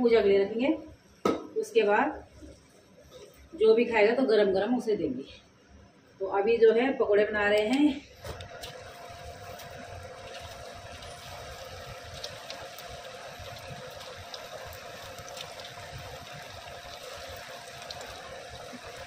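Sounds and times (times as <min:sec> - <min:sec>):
batter sizzling in hot oil: 0:08.2 - 0:19.0
oil popping and crackling: 0:08.2 - 0:19.0.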